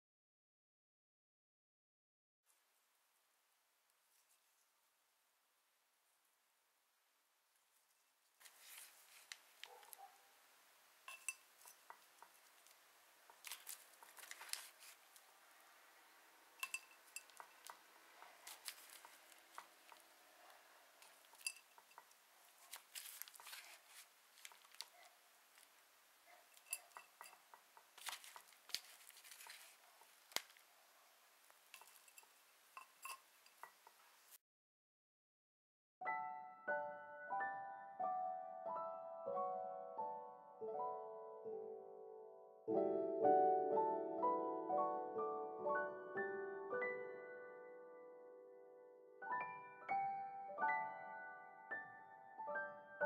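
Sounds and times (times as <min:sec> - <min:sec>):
scoop knocking on clay pot: 0:11.1 - 0:12.1, 0:16.6 - 0:17.8
scoop digging into potting mix: 0:16.6 - 0:20.1, 0:21.0 - 0:24.9.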